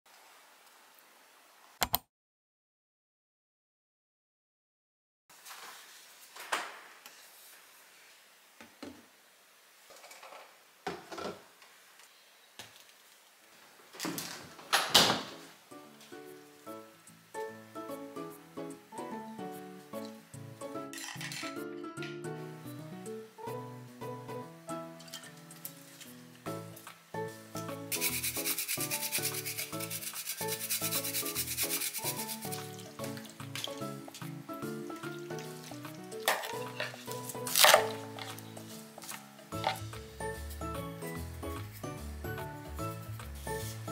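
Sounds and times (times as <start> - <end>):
ginger rasping on grater: 27.9 - 32.7.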